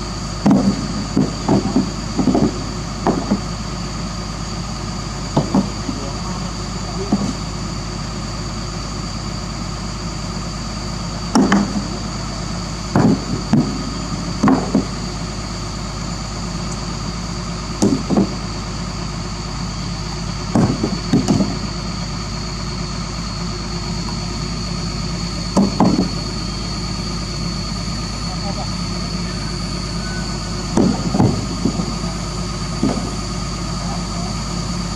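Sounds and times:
excavator diesel engine idling: 0:00.0 - 0:34.9
rocks clunking: 0:00.4 - 0:03.6, 0:05.3 - 0:06.2, 0:11.3 - 0:12.0, 0:20.5 - 0:21.7, 0:30.7 - 0:32.1.

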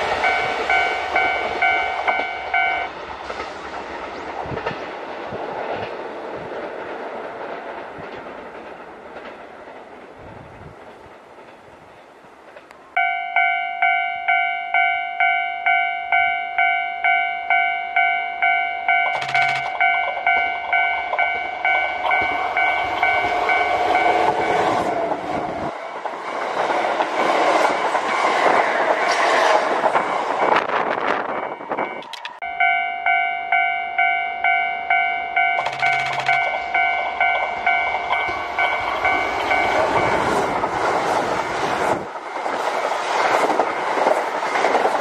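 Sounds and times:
electric train passing: 0:00.0 - 0:45.0
level crossing electronic bell: 0:00.2 - 0:02.9, 0:13.0 - 0:24.2, 0:31.8 - 0:40.2.

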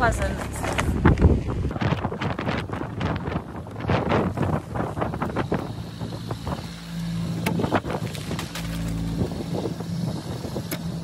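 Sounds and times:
wind gusting over microphone: 0:00.0 - 0:11.0
vehicle engine idling: 0:03.0 - 0:11.0.

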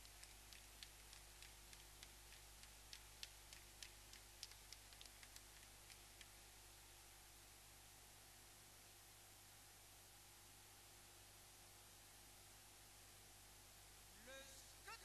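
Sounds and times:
faint sharp clicks: 0:00.0 - 0:06.4
faint hiss: 0:00.0 - 0:15.0.

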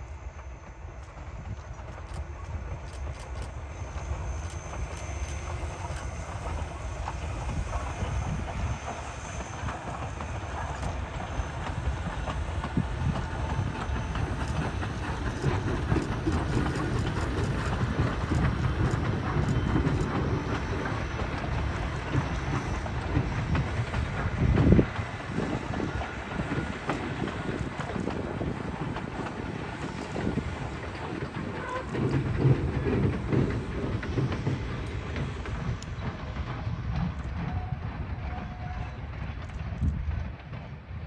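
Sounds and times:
train rumbling on track: 0:00.0 - 0:41.0
wheels clicking on rail: 0:01.0 - 0:40.7.

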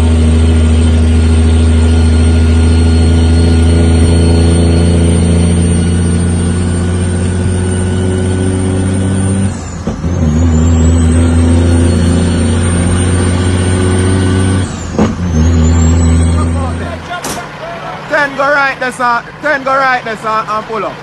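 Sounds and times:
truck diesel engine pulling hard: 0:00.0 - 0:21.0
high whistle: 0:09.5 - 0:16.8.

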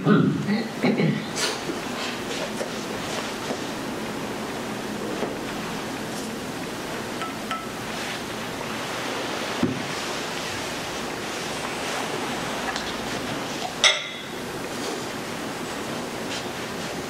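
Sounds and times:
room noise hiss: 0:00.0 - 0:17.0
glass clink: 0:07.2 - 0:07.7, 0:13.8 - 0:14.4.

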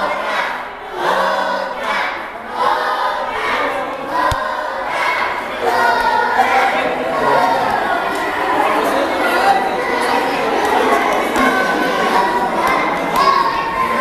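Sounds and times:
crowd chanting: 0:00.0 - 0:14.0.

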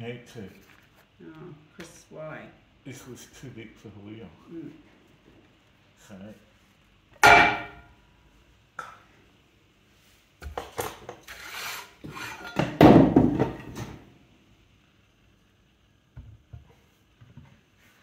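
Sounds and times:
clay crumbs scraped off board: 0:11.2 - 0:12.4.

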